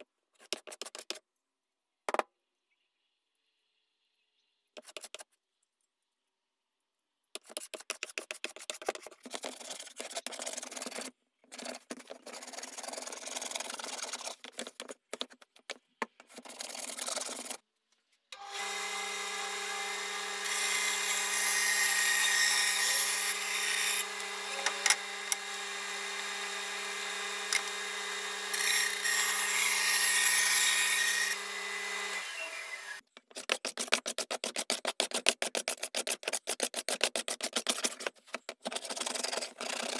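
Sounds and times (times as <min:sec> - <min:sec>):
bandsaw humming and cutting: 0:18.4 - 0:33.0
hand plane cutting wood: 0:18.7 - 0:38.1.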